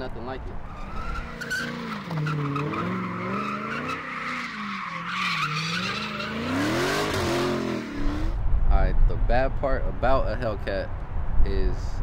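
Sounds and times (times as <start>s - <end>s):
tires squealing: 0.5s - 8.4s
car engine revving: 0.9s - 8.4s.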